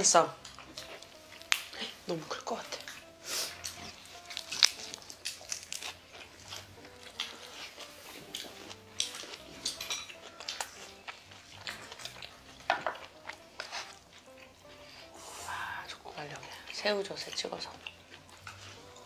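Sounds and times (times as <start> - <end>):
close chewing with crackles: 0.0 - 19.0
faint background music: 0.0 - 19.0.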